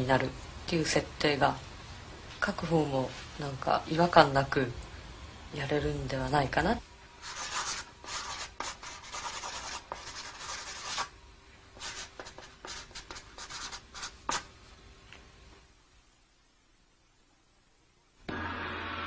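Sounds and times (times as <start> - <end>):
marker scratching on card: 7.2 - 11.1, 11.8 - 14.5.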